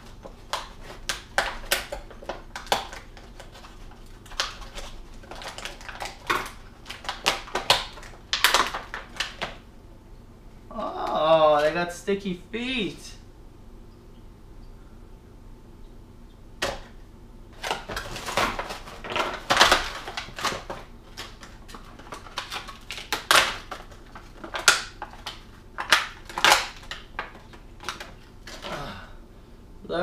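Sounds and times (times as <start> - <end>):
plastic bag crinkling: 0.0 - 9.6, 17.5 - 28.8.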